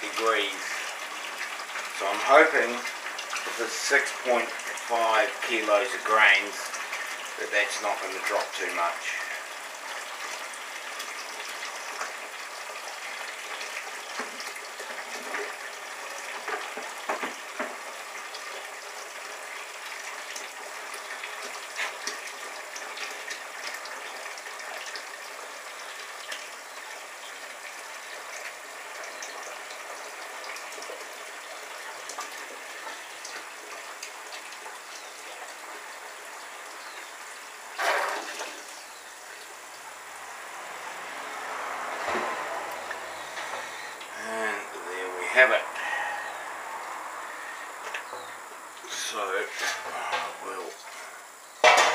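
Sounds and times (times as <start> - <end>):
water gushing into a cooler: 0.0 - 51.9.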